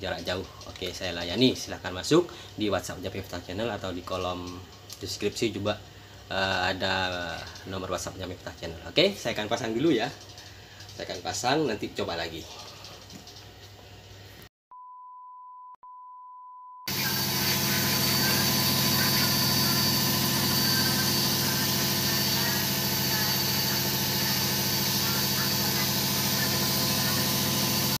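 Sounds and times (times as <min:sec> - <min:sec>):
washing machine spinning: 0:16.9 - 0:28.0.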